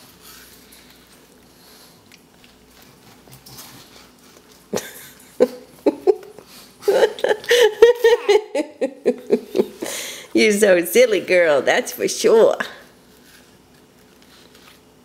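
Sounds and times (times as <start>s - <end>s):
toddler giggling: 4.8s - 9.8s.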